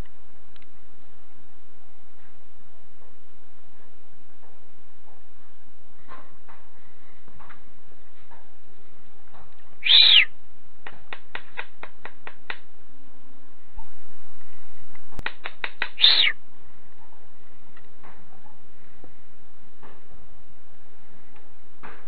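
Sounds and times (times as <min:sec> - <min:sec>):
bird call with clicking chips: 0:09.8 - 0:10.3, 0:16.0 - 0:16.3.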